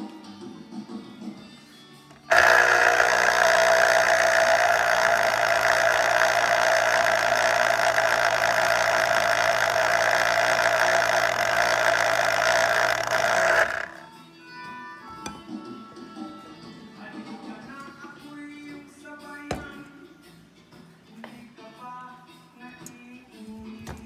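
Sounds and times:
electric juicer motor whirring: 2.2 - 14.1.

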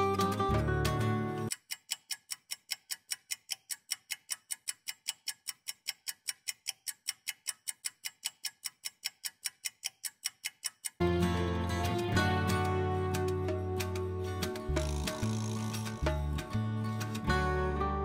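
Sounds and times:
fast clock ticking: 1.5 - 11.0.

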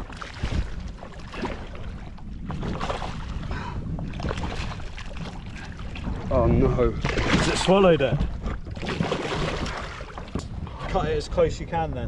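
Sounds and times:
wind on microphone: 0.0 - 12.0
fish splashing water: 4.0 - 6.2, 8.5 - 10.4.

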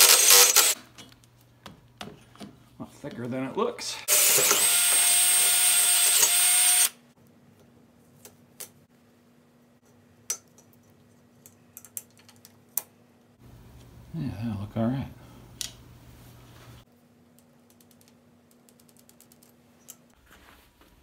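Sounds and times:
cordless drill boring through metal: 0.0 - 0.8, 4.1 - 7.0.

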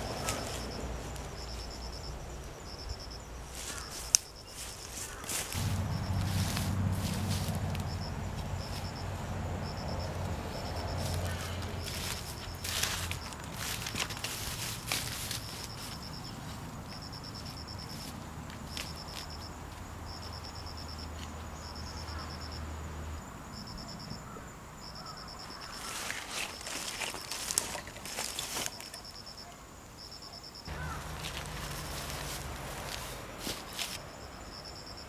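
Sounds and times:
insect buzzy trills: 0.0 - 35.0
footsteps through grass: 3.5 - 9.2, 10.2 - 19.8, 25.6 - 29.0, 30.7 - 34.0.

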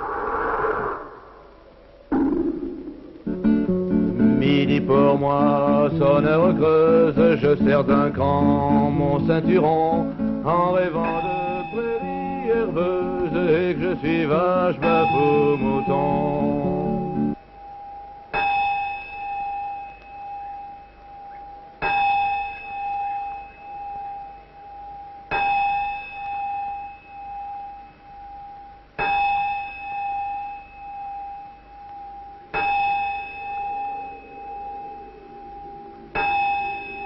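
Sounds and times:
bell-like metallic tone: 10.7 - 37.0.

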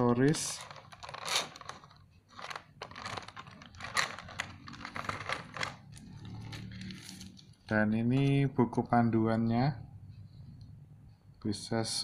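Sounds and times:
plastic packaging clicks and crackles: 0.0 - 7.6.

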